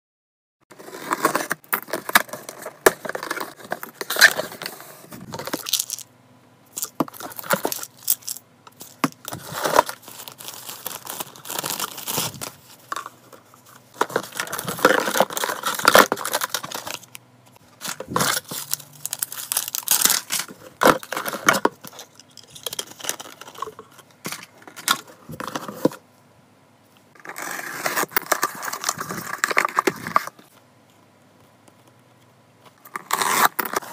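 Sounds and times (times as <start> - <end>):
cardboard rustling: 0.7 - 6.0, 6.8 - 17.1, 17.7 - 26.0
packing tape tearing: 6.8 - 12.6, 14.1 - 17.1, 17.8 - 23.7, 32.8 - 33.9
plastic wrapping crinkling: 6.8 - 13.2, 17.8 - 23.9.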